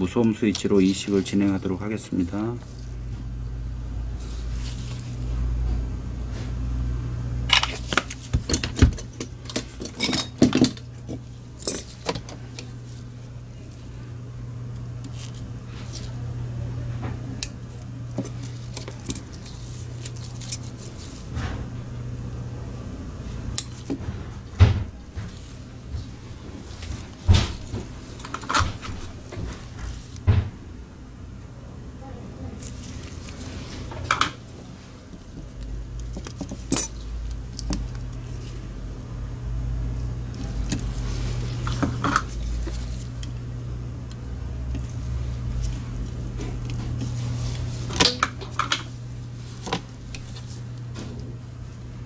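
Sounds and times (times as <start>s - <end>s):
steady low hum: 0.0s - 52.0s
forceps and small parts clinking: 36.0s - 38.1s.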